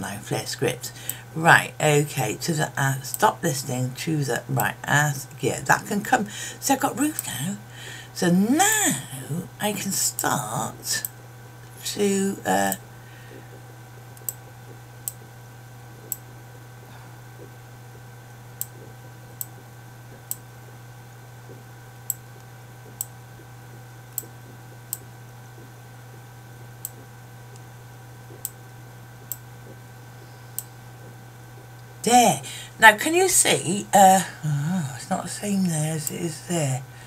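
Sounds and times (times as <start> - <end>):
low electrical hum: 0.0 - 37.0
computer mouse clicking: 24.1 - 25.7, 26.8 - 27.7.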